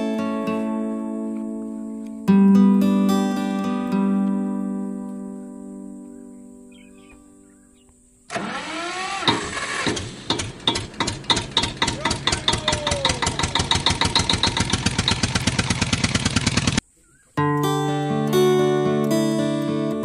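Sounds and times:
tractor engine starting and chugging: 0:08.3 - 0:16.8.

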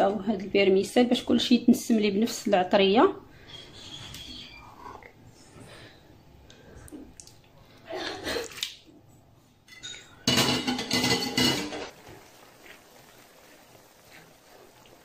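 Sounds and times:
frying pan and utensils clattering: 0:09.7 - 0:12.0.

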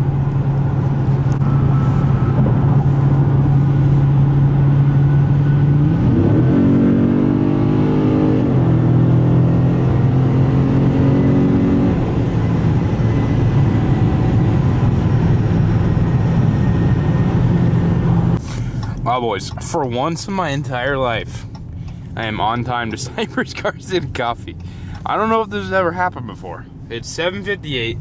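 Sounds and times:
car engine accelerating: 0:00.0 - 0:19.8.

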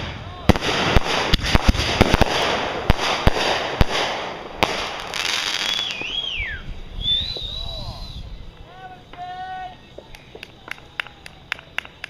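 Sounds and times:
fireworks bangs and crackle: 0:00.0 - 0:09.2
wavering falling whistle: 0:05.5 - 0:08.3.

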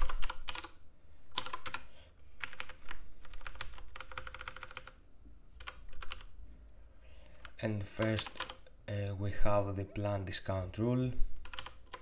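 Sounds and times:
typing on computer keyboard: 0:00.0 - 0:05.0, 0:05.6 - 0:06.3, 0:07.3 - 0:08.7, 0:11.4 - 0:12.0.

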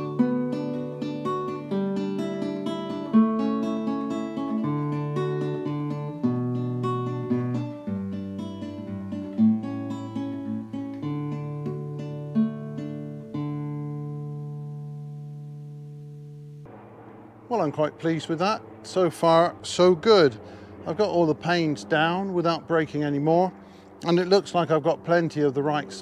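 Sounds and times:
acoustic guitar plucked chords: 0:00.0 - 0:16.7.

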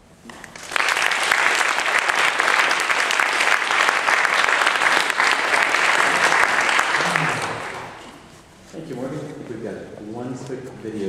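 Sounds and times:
audience applauding: 0:00.3 - 0:08.4.

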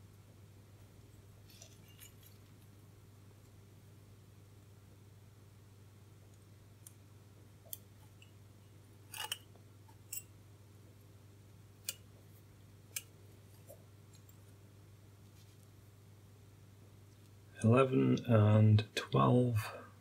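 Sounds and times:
steady low hum: 0:00.0 - 0:20.0
small clicks and scrapes: 0:01.4 - 0:02.7, 0:09.1 - 0:10.3.

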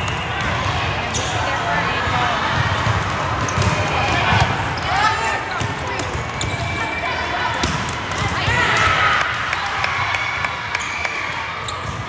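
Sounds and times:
spectators cheering and shouting: 0:00.0 - 0:12.0.

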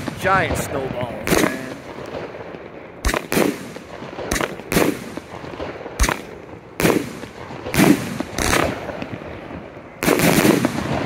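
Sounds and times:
firework bangs: 0:00.0 - 0:11.0.

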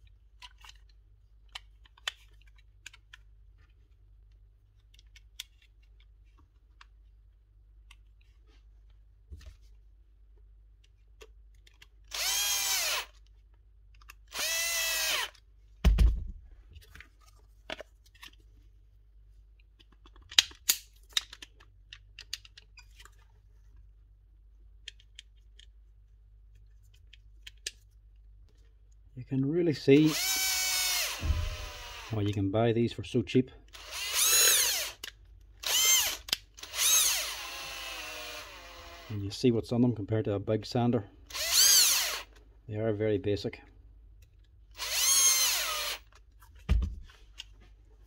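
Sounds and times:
light clicks of handling parts: 0:00.0 - 0:12.0, 0:19.4 - 0:23.9, 0:24.6 - 0:29.1
power tool motor spinning: 0:30.1 - 0:32.1, 0:33.8 - 0:35.0, 0:35.6 - 0:39.1, 0:41.3 - 0:42.3, 0:44.8 - 0:46.0
heavy thump: 0:31.2 - 0:31.9.

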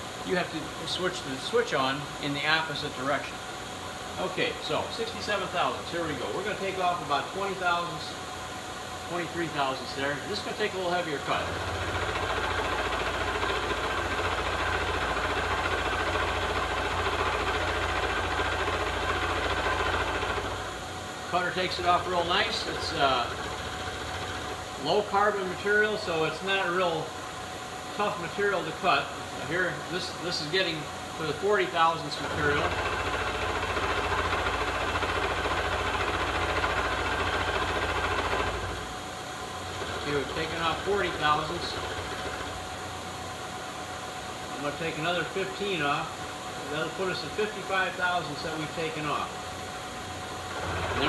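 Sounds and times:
milling machine cutting steel: 0:10.2 - 0:20.8, 0:21.4 - 0:26.2, 0:30.0 - 0:38.9, 0:39.7 - 0:42.7.

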